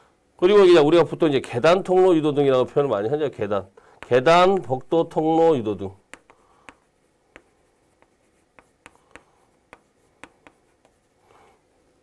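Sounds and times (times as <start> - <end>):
chalk tapping and scratching on board: 4.0 - 11.2.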